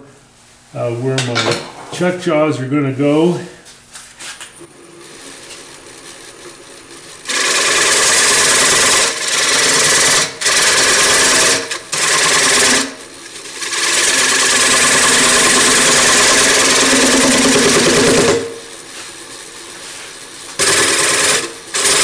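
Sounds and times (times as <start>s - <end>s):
lathe motor running: 4.6s - 22.0s
turning tool cutting wood: 4.7s - 22.0s.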